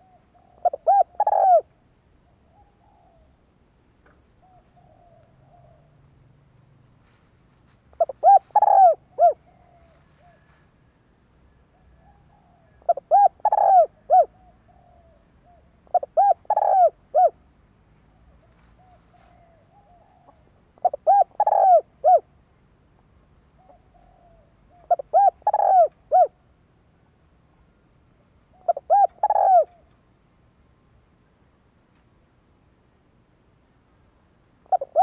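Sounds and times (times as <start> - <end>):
dove cooing: 0.0 - 3.4, 4.3 - 6.1, 7.9 - 10.7, 11.7 - 17.4, 18.2 - 22.4, 23.6 - 26.4, 28.5 - 30.0, 34.6 - 35.0.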